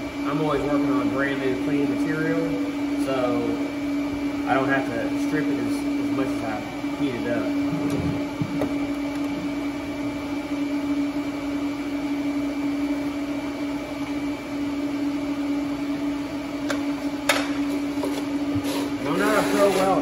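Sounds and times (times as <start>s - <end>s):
machine hum with high whine: 0.0s - 20.0s.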